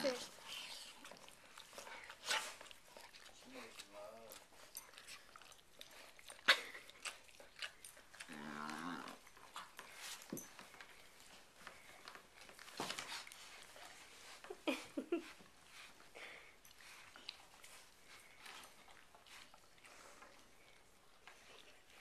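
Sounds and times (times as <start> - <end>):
dog licking and slurping: 0.0 - 14.2, 16.7 - 22.0
dog groaning: 8.1 - 9.3.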